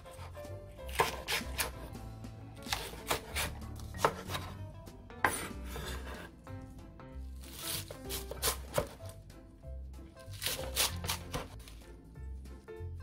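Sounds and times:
knife slicing leek on board: 0.0 - 2.0, 2.6 - 4.6, 5.2 - 6.3, 7.4 - 9.2, 10.3 - 11.8.

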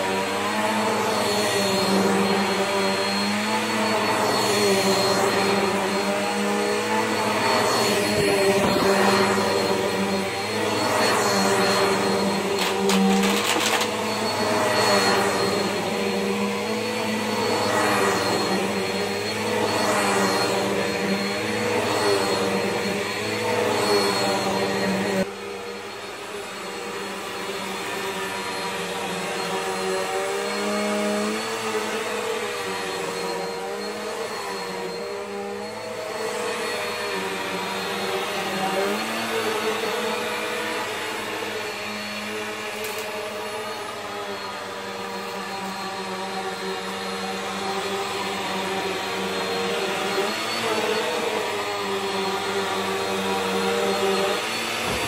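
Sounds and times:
vacuum cleaner on carpet: 0.0 - 55.0.

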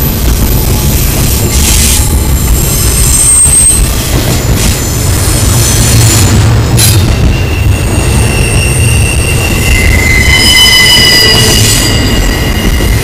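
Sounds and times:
freight train wheels rumbling on rail: 0.0 - 13.0
wheel squeal: 0.5 - 4.0, 6.8 - 13.0.

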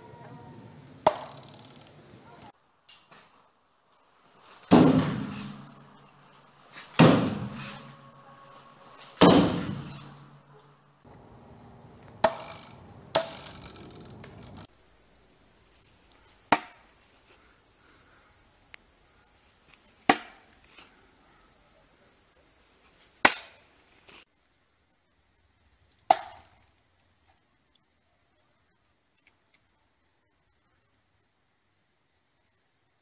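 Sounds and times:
bayonets thudding into wood: 4.4 - 5.7, 6.7 - 7.8, 9.1 - 10.0.

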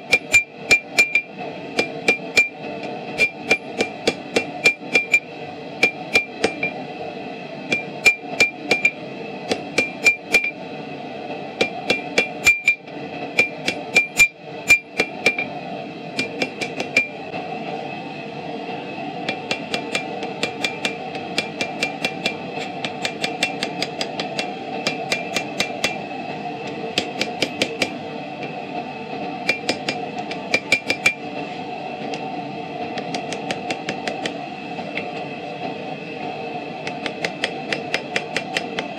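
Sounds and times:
hammer striking metal on anvil: 0.0 - 6.8, 7.7 - 10.6, 11.6 - 15.5, 16.2 - 17.2, 19.3 - 26.0, 27.0 - 28.0, 29.4 - 31.2, 36.8 - 38.9
bright anvil ring: 0.1 - 1.3.

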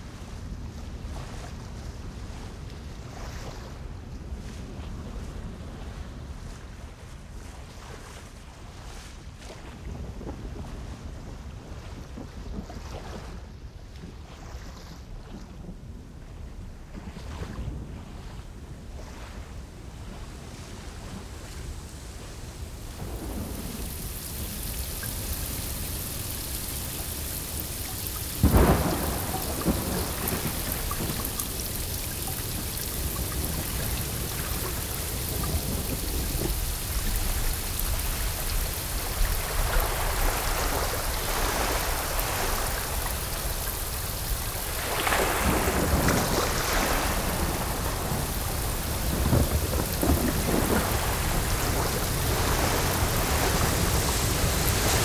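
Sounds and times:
steady rain falling: 19.7 - 55.0
thunder rumbling: 22.8 - 55.0
sharp thunderclap: 23.0 - 37.5, 45.3 - 54.6.

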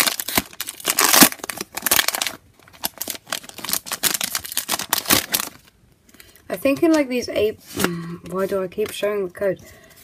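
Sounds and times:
foil wrapper crinkling: 0.0 - 6.4.

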